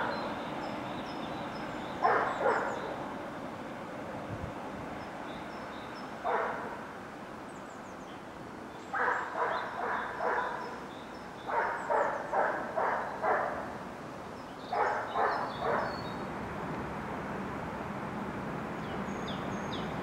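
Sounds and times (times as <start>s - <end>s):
dog barking: 2.0s - 2.8s, 6.2s - 6.8s, 9.0s - 10.6s, 11.5s - 13.7s, 14.7s - 16.0s.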